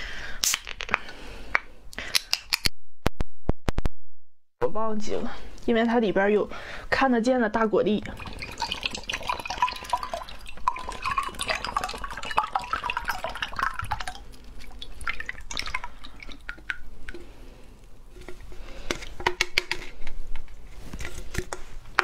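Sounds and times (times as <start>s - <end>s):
liquid dripping: 8.0s - 17.9s
juice pouring into a glass: 8.1s - 17.4s.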